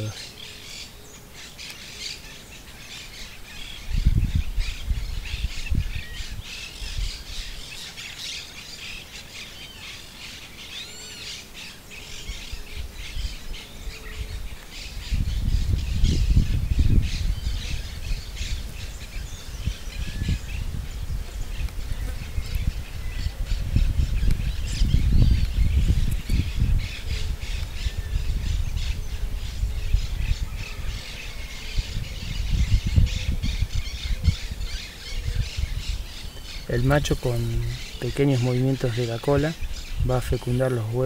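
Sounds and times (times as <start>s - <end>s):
birds chirping: 0.0s - 41.0s
low rumble on microphone: 3.8s - 7.4s, 14.0s - 41.0s.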